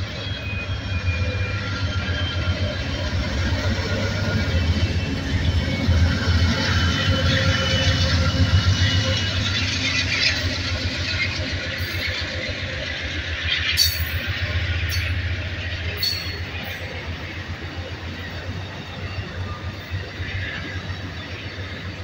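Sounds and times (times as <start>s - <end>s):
diesel locomotive rumble: 0.0s - 22.0s
sharp clicks from train cars: 11.3s - 17.0s.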